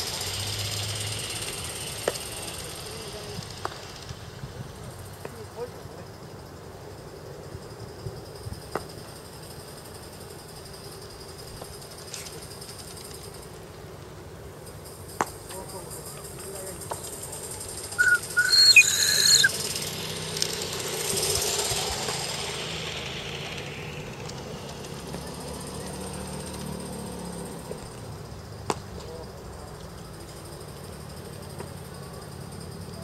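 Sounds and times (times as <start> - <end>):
steam hissing: 17.9 - 25.0
steam locomotive whistle: 18.0 - 19.5.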